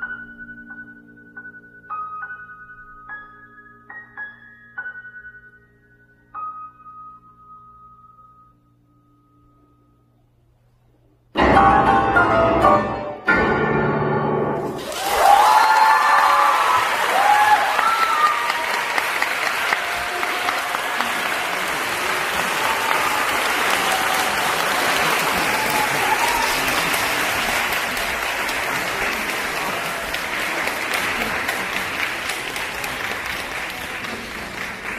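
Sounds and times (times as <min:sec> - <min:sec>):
audience applauding: 0:14.7 - 0:34.9
people cheering: 0:14.8 - 0:34.9.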